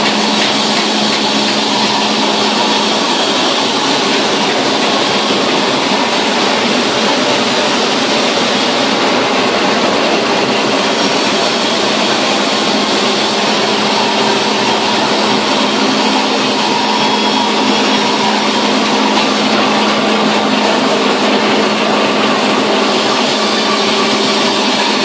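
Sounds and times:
machine whirring: 0.0s - 25.0s.

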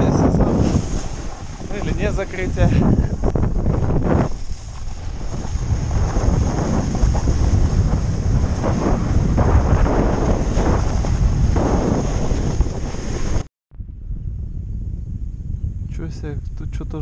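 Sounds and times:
wind buffeting microphone: 0.0s - 17.0s
snowboard edge scraping snow: 0.1s - 13.5s.

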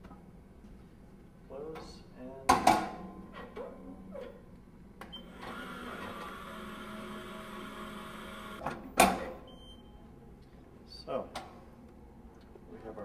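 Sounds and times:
mechanical whir: 5.2s - 8.6s.

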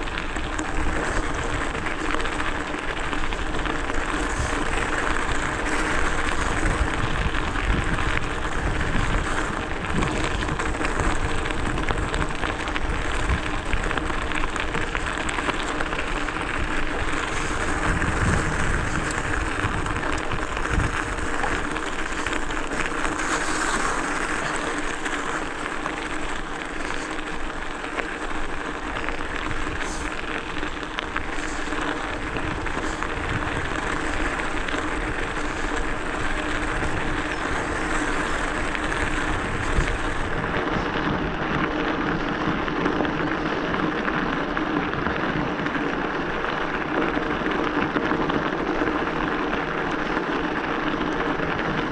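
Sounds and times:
steady hum: 0.0s - 45.1s
bike tyres rolling and rattling: 0.0s - 51.9s
wind on microphone: 3.2s - 43.1s.

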